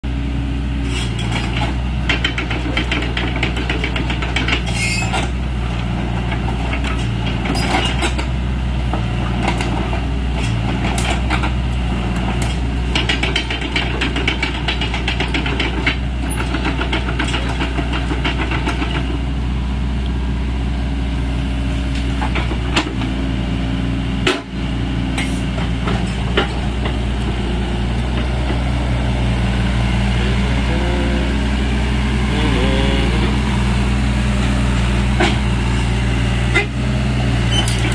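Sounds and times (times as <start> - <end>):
excavator diesel engine running: 0.0 - 37.9.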